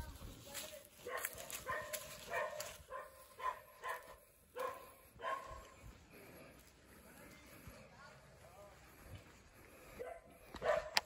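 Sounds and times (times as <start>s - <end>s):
dog barking: 1.0s - 5.8s, 10.0s - 11.0s.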